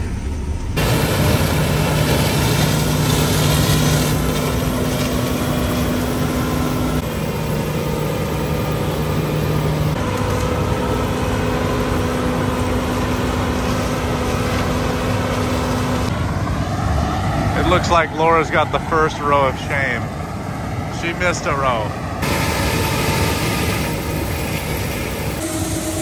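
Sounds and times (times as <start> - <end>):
combine harvester engine drone: 0.0 - 26.0.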